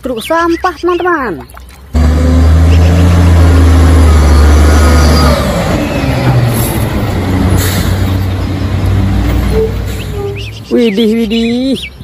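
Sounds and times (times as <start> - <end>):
garbage truck diesel engine: 2.0 - 10.7.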